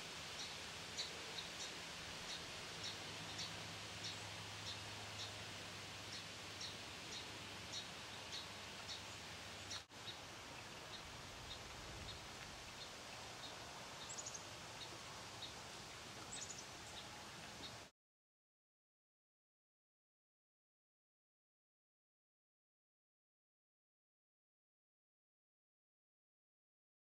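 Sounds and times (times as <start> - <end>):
bird chirping: 2.3 - 5.4, 6.1 - 10.2, 10.9 - 15.6, 16.2 - 17.8.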